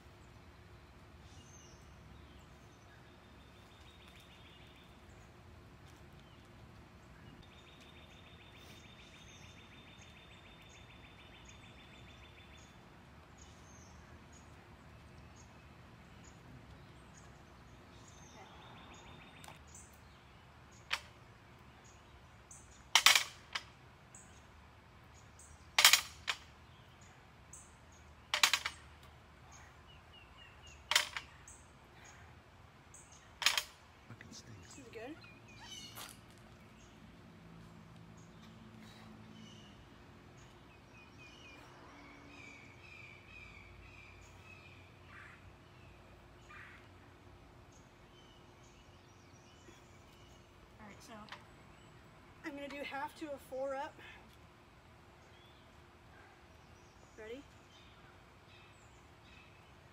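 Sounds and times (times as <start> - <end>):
birds chirping: 0.0 - 59.9
weights clanking on asphalt: 22.9 - 23.7, 25.7 - 26.4, 28.2 - 28.9, 30.9 - 31.4.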